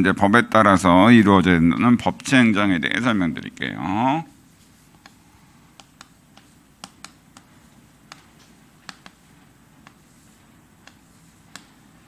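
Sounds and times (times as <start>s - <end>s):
low room hum: 0.0s - 12.0s
chalk tapping on blackboard: 4.4s - 12.0s.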